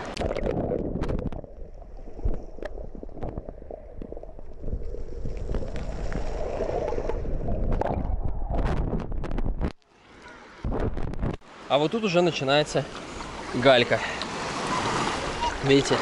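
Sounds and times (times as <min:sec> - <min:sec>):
muffled underwater rumbling: 0:00.0 - 0:09.7
water splashing: 0:00.0 - 0:11.0, 0:12.3 - 0:16.0.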